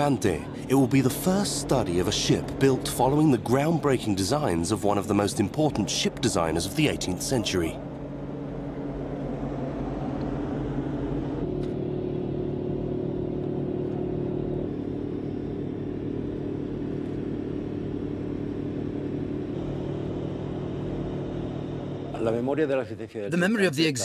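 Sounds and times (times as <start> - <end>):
boat engine humming: 0.0 - 22.2
higher engine tone: 0.0 - 22.5.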